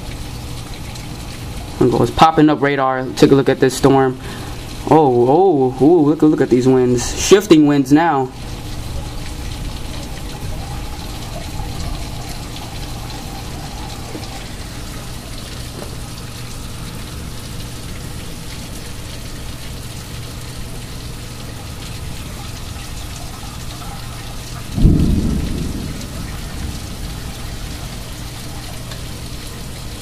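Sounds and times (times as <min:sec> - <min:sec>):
heavy rain: 0:00.0 - 0:30.0
thunderclap: 0:24.6 - 0:28.1.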